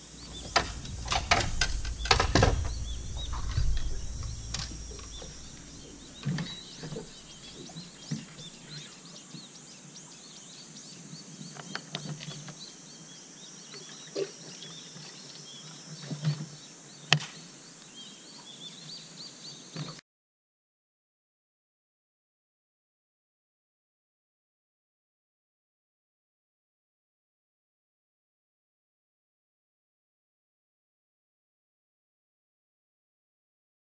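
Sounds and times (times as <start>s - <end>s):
low rumble: 0.0s - 8.4s
birds chirping and singing: 0.0s - 13.6s
knocks and thumps on boat deck: 0.2s - 8.4s.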